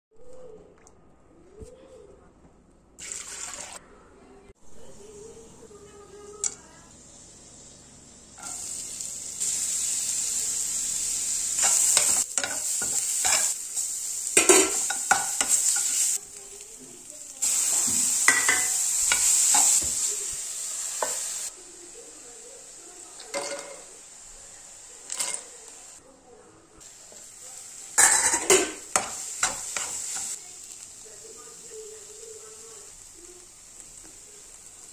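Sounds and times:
onions sizzling in oil: 6.2s - 26.0s, 26.8s - 34.9s.

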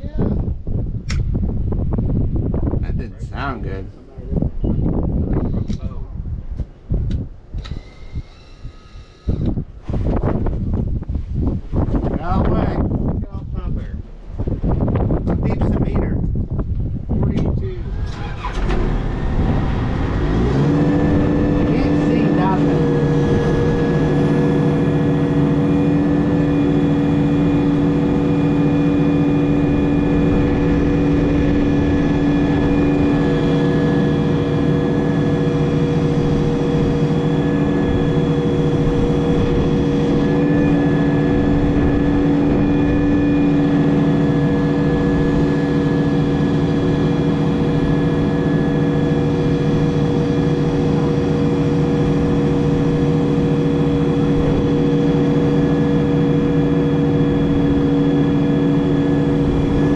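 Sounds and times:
backhoe diesel engine running: 17.8s - 59.9s.

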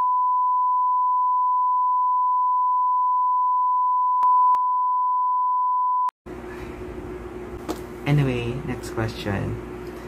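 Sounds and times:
censor bleep tone: 0.0s - 6.1s.

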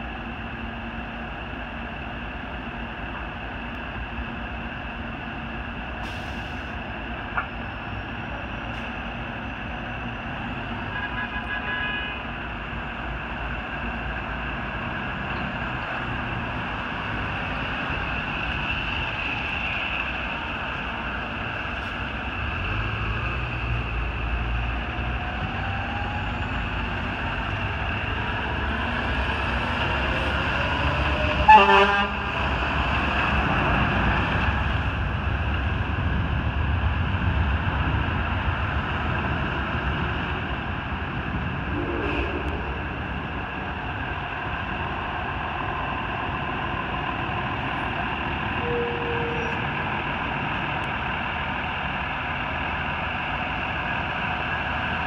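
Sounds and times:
fire truck diesel engine: 0.0s - 55.0s
horn toot: 31.4s - 32.3s.

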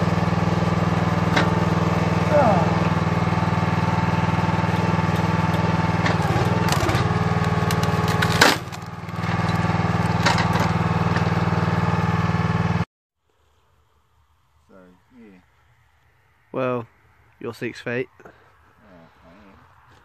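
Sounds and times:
log splitter engine running: 0.0s - 12.9s
wood crackling and splintering: 4.2s - 11.3s
loud wood crack: 4.8s - 10.7s.

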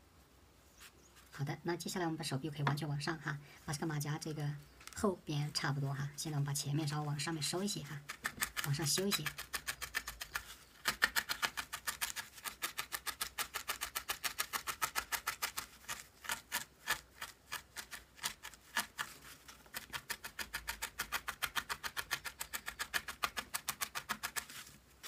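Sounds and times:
felting needle stabbing into foam: 7.1s - 24.6s.

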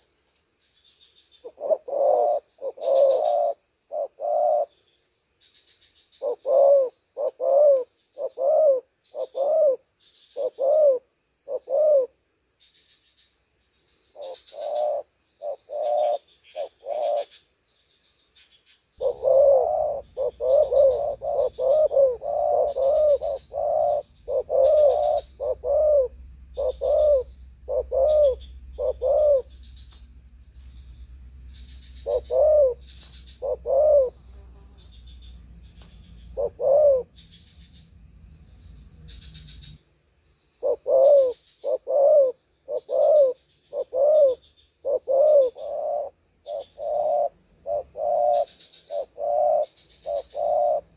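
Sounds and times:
doves cooing: 1.4s - 4.8s, 6.2s - 12.2s, 14.1s - 17.4s, 19.0s - 29.6s, 31.8s - 35.2s, 36.2s - 37.3s, 40.6s - 50.9s.

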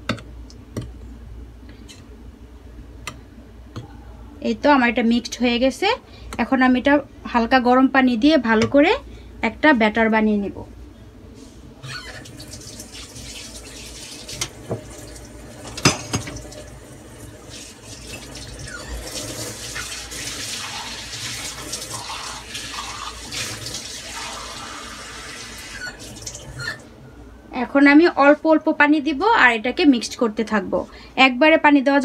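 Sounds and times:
water running from tap: 11.9s - 26.8s.

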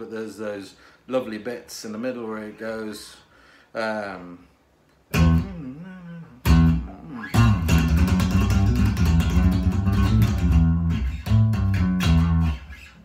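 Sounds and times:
electric bass guitar plucked: 5.1s - 13.0s.

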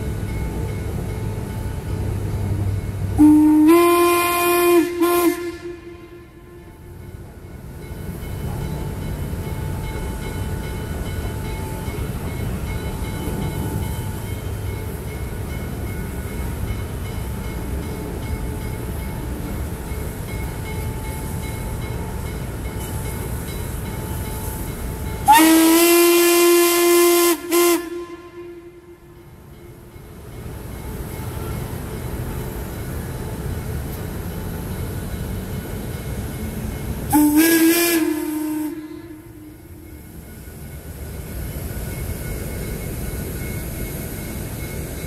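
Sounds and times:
steam locomotive rumbling past: 0.0s - 45.0s
steam whistle blasts: 3.2s - 6.9s, 25.2s - 29.0s, 37.1s - 39.8s.

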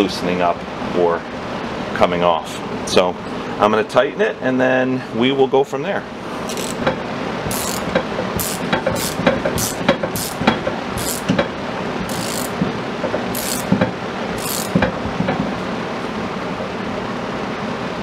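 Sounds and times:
hand ratchet clicking: 6.5s - 6.9s, 7.5s - 11.4s, 12.1s - 12.6s, 13.3s - 13.8s, 14.4s - 14.9s.

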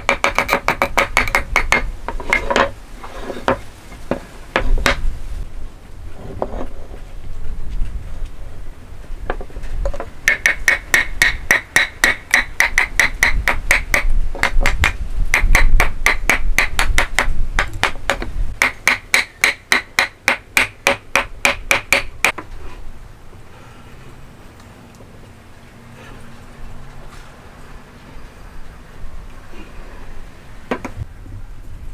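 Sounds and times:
hammer tapping on wood: 0.1s - 2.6s, 10.3s - 22.4s.

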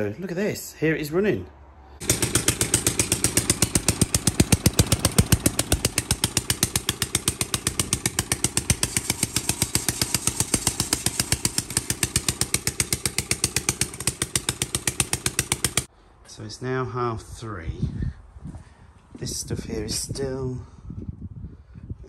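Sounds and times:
unsilenced engine idling: 2.0s - 15.9s.

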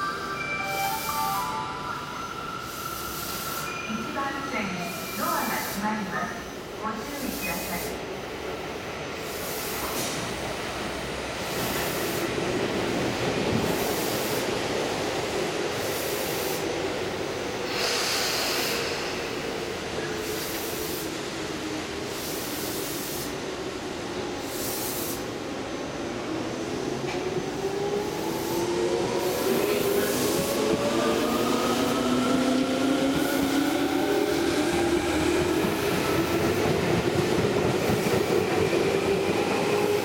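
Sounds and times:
train door hiss: 9.2s - 10.5s, 11.4s - 12.5s, 17.6s - 21.3s, 22.0s - 23.6s, 24.3s - 25.5s.

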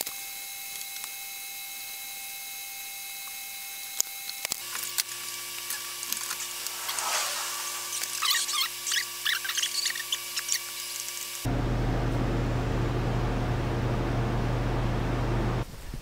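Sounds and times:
high scattered squeaks: 5.7s - 10.7s.

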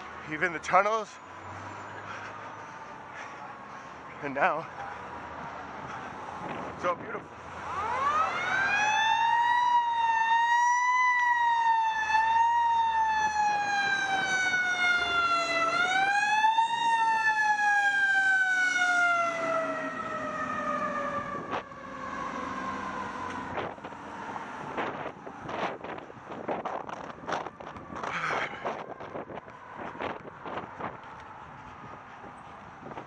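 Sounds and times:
fire truck siren wailing: 7.4s - 33.0s.

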